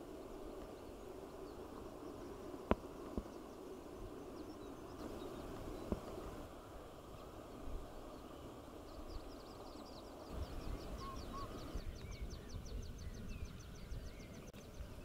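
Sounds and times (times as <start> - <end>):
faint background hiss: 0.0 - 15.0
distant bird trilling: 10.4 - 12.4.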